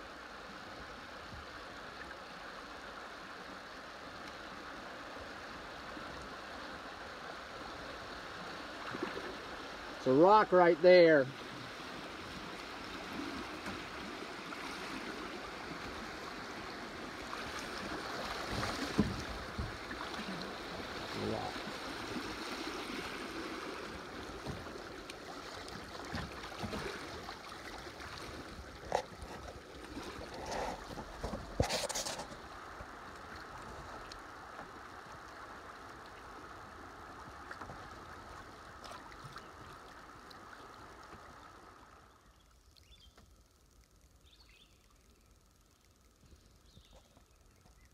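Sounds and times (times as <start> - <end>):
river water rushing: 0.0 - 42.0
splashes and knocks: 8.8 - 9.4, 17.2 - 33.0.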